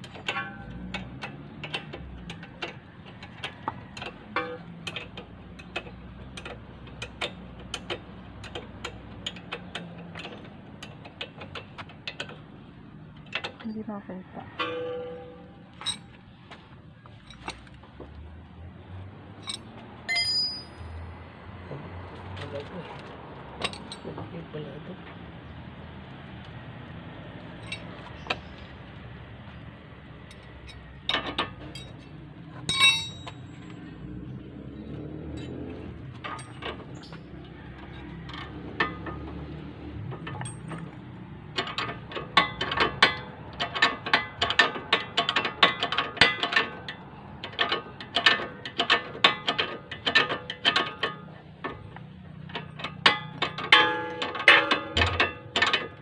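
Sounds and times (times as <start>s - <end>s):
metal clinks: 14.6s - 16.2s, 17.2s - 17.8s, 19.4s - 21.0s, 27.6s - 28.3s, 30.2s - 33.8s, 35.3s - 39.2s, 40.0s - 56.0s.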